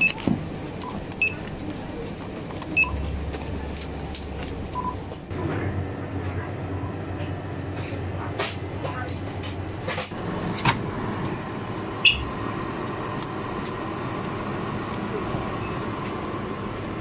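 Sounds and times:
barcode scanner beeps: 0:00.8 - 0:01.5, 0:02.7 - 0:03.0.

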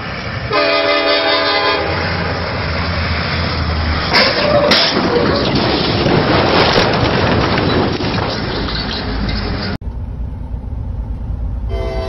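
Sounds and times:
diesel train rumbling: 0:00.0 - 0:12.0
locomotive air horn blast: 0:00.5 - 0:02.3, 0:11.7 - 0:12.0.

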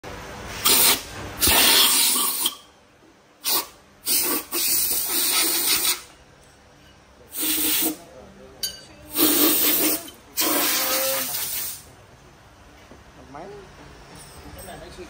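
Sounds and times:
compressed air blow gun hissing: 0:00.6 - 0:02.6, 0:03.4 - 0:06.1, 0:09.1 - 0:11.9.

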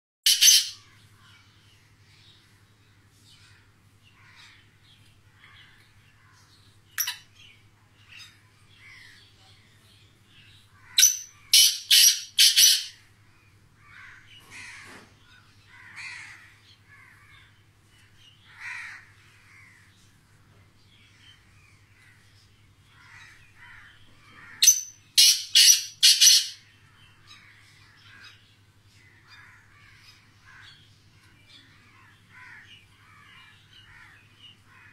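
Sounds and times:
francolin harsh calls: 0:00.3 - 0:01.0, 0:10.8 - 0:13.0, 0:23.0 - 0:26.6.

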